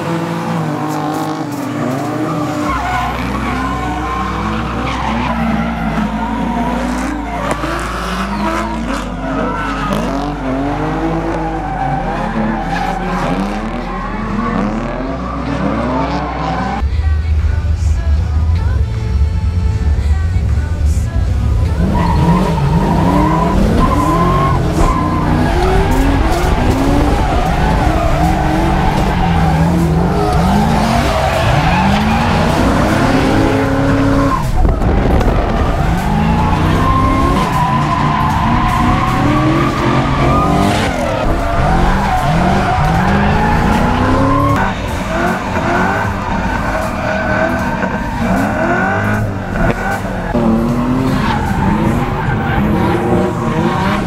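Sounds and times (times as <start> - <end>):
car engine revving hard: 21.6 - 54.0
tyres squealing: 21.6 - 54.0.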